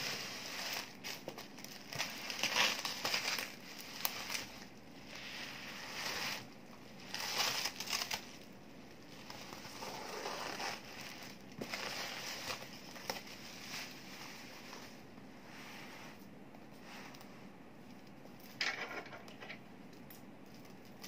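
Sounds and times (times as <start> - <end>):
plastic film crinkling: 0.0 - 4.8, 5.6 - 14.6.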